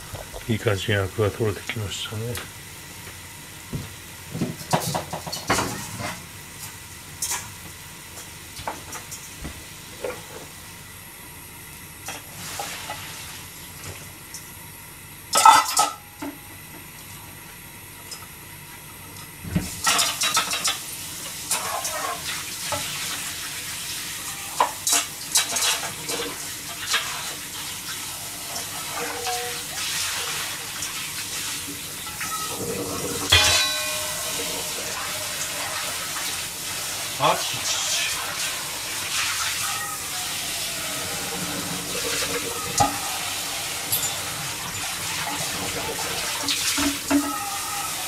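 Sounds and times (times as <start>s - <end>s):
metal pots and utensils clanking: 15.3s - 16.0s, 19.8s - 20.8s, 32.0s - 36.4s, 41.4s - 47.4s.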